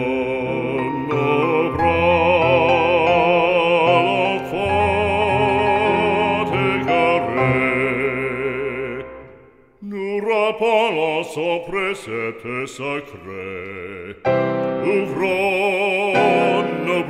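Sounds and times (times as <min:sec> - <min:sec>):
operatic music with vibrato: 0:00.0 - 0:09.4, 0:14.3 - 0:17.0.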